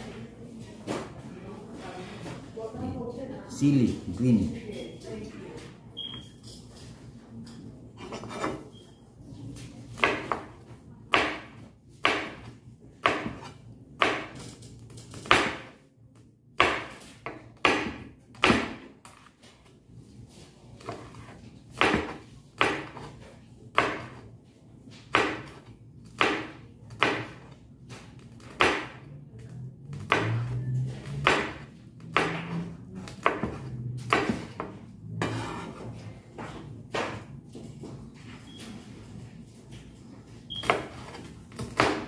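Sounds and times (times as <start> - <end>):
knife chopping on cutting board: 10.0 - 10.5, 11.1 - 15.8, 16.6 - 19.3, 20.8 - 24.3, 25.0 - 27.6, 28.4 - 29.1, 30.0 - 35.9, 40.6 - 42.0.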